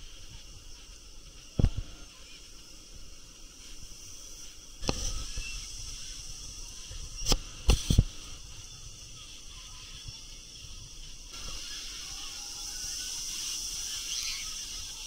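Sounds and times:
high outdoor hiss: 0.0 - 15.0.

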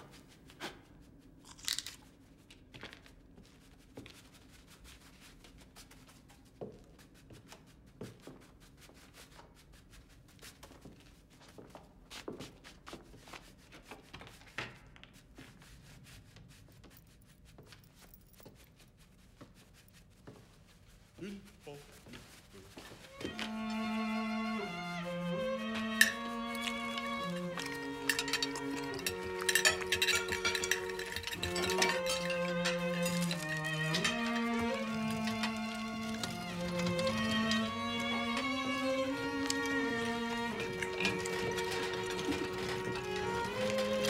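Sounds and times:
faint crackling and crunching: 0.0 - 4.5.

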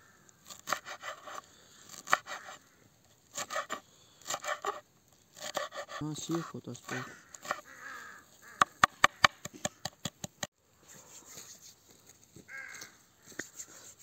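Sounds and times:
bird calling: 6.3 - 10.1.

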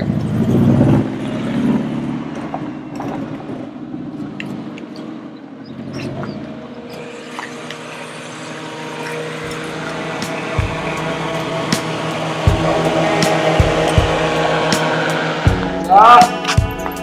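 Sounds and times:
van engine idling: 0.0 - 17.0.

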